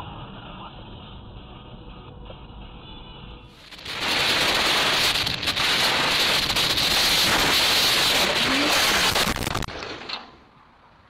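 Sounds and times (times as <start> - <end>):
wind rushing over camera: 3.6 - 10.0.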